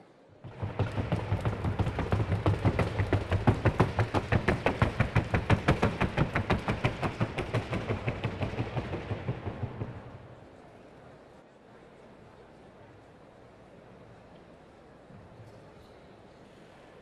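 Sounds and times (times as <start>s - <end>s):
hooves knocking on wooden board: 0.4s - 10.3s.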